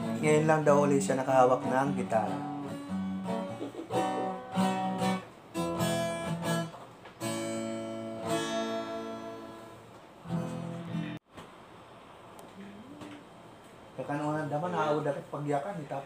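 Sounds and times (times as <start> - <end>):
acoustic guitar strumming: 0.0 - 11.2.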